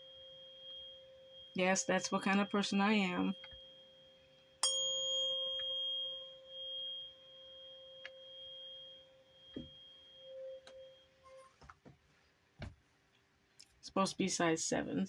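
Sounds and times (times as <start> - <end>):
tuning fork ringing: 0.0 - 11.6.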